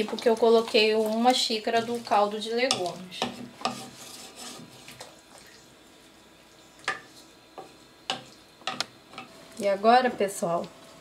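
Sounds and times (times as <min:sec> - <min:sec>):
utensil tapping pan: 0:00.0 - 0:04.0, 0:06.8 - 0:09.4
food sizzling in pan: 0:00.0 - 0:11.0.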